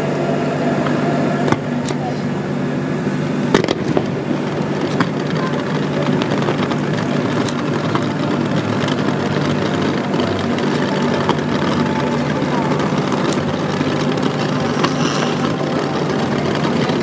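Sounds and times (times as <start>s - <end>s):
low rumble: 0.0s - 17.0s
faint crackling: 3.0s - 17.0s
firework shells popping: 3.5s - 17.0s.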